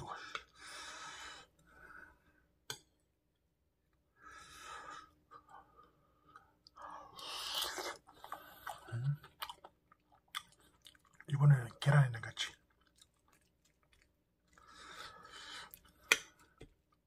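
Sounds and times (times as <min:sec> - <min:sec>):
breathing: 0:00.0 - 0:02.4, 0:04.2 - 0:07.4, 0:14.5 - 0:16.6
chewing food: 0:07.5 - 0:11.3, 0:12.4 - 0:17.0.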